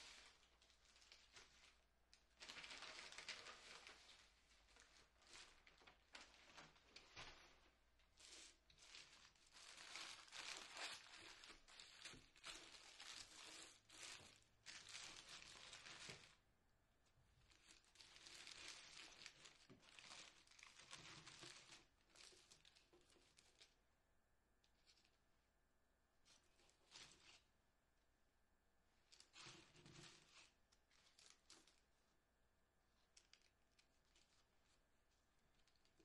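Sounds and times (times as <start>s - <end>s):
paper wrapper crinkling: 0.0s - 16.4s, 17.5s - 23.8s, 29.1s - 31.9s.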